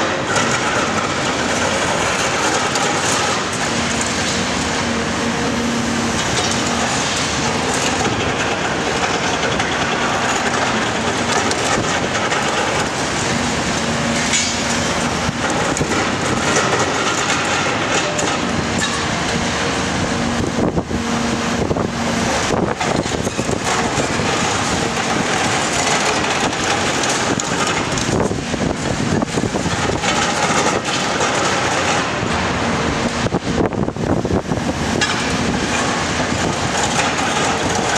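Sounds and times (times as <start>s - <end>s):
concrete cracking and grinding: 0.0s - 19.7s, 22.6s - 32.3s, 35.0s - 37.9s
excavator diesel engine and hydraulics: 0.0s - 37.9s
falling rubble clattering: 0.2s - 4.5s, 6.2s - 19.1s, 22.8s - 28.3s, 29.2s - 32.2s.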